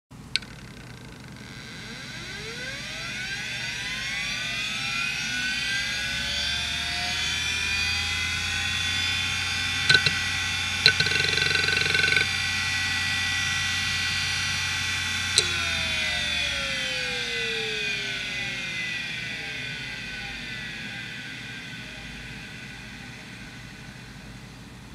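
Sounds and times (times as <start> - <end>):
hard drive spindle whine: 0.2 - 24.9
hard drive clicks: 0.3 - 2.6, 9.9 - 12.4, 14.0 - 18.6
buzzing head seeks: 0.3 - 24.9.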